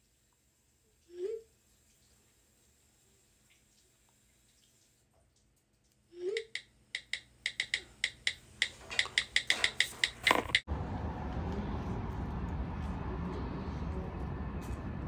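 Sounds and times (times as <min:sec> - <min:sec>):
sharp clicks: 0:06.4 - 0:10.7.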